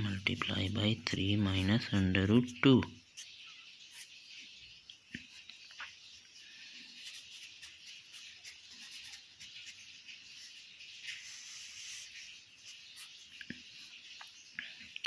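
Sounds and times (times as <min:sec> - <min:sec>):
pen scratching on paper: 0:07.0 - 0:13.1.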